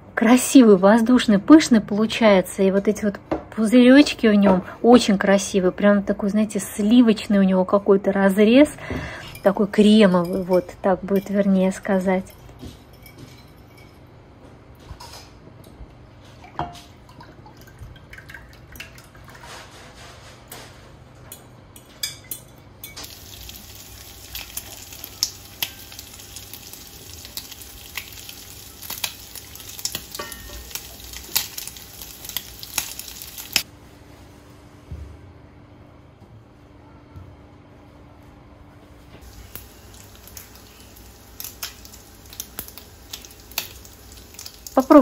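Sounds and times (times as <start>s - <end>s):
spoon clinking against glass bowl: 12.2s - 14.1s
steady hiss: 39.2s - 44.7s.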